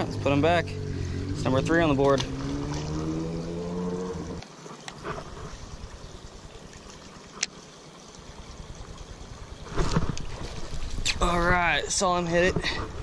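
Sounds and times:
low droning hum: 0.0 - 4.4
trickling water: 0.0 - 13.0.

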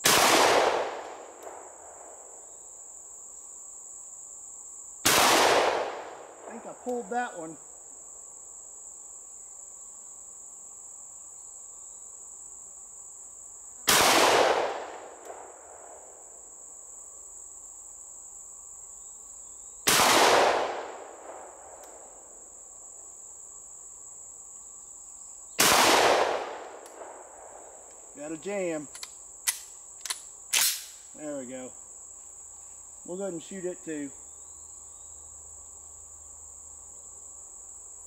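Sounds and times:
shotgun shots: 0.0 - 1.6, 5.0 - 6.2, 13.9 - 15.5, 19.9 - 21.5, 25.6 - 27.2, 30.5 - 31.0
high-pitched insect drone: 27.6 - 38.0.

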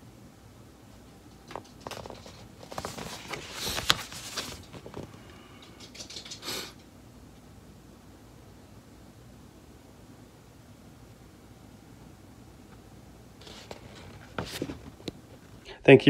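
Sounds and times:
paper map rustling and crackling: 1.0 - 6.4, 13.4 - 15.6.

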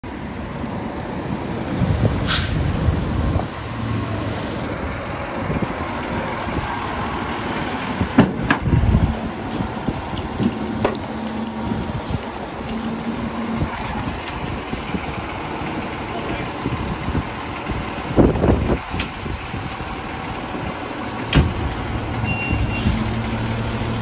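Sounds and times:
diesel truck engine driving: 0.0 - 24.0
air brake hiss: 2.2 - 2.7, 22.5 - 23.2.

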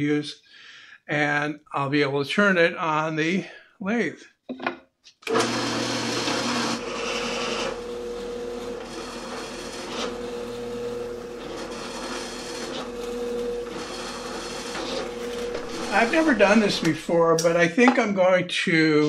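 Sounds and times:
drill press motor hum: 5.3 - 17.1
drill bit cutting plywood: 5.3 - 17.2.

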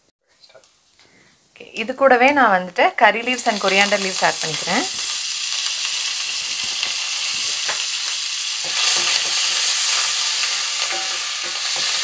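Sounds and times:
leaves sizzling in hot oil: 1.7 - 12.0
utensil scraping a steel pan: 8.6 - 12.0.

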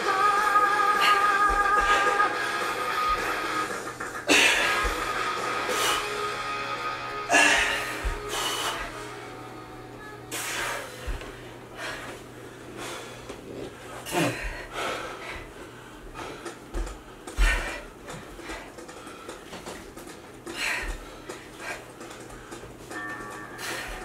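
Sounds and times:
person breathing hard: 0.0 - 9.3, 10.3 - 22.8, 23.4 - 24.0.

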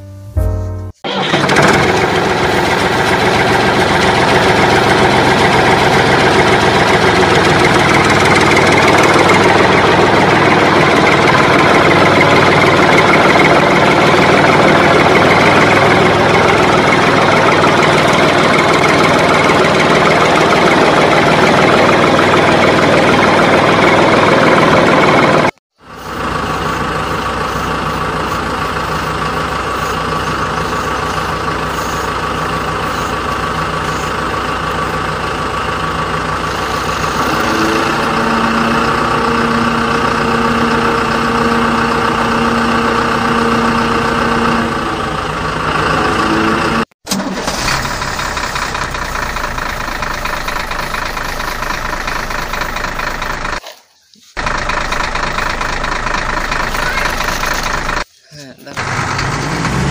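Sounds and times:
truck engine running: 0.1 - 59.9.

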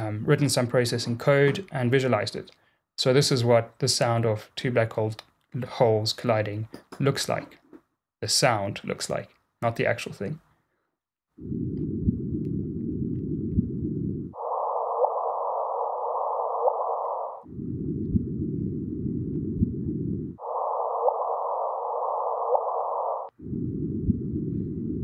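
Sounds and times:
short rising chirps: 14.3 - 17.5, 20.4 - 23.3
detector noise hiss: 14.4 - 17.4, 20.4 - 23.3.

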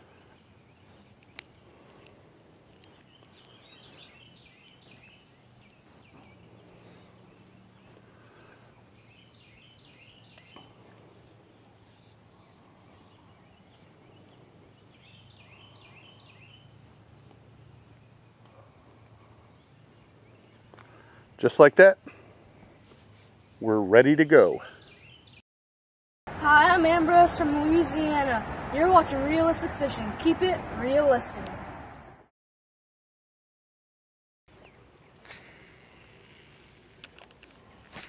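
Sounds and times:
songbird chirping: 0.0 - 22.2, 22.8 - 25.4.

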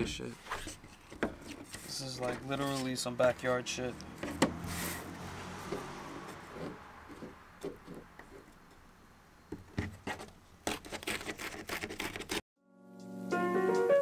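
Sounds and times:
sandpaper rubbing and crackling: 0.3 - 3.7, 4.7 - 5.1, 9.9 - 12.4.

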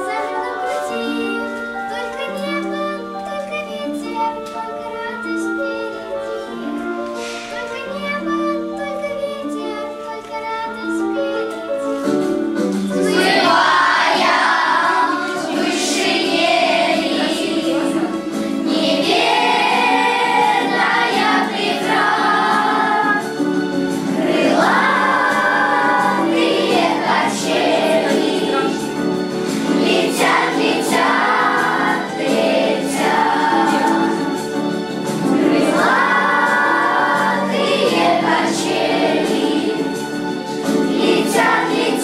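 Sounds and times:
instrumental backing track: 0.0 - 42.0
children singing: 13.0 - 42.0.

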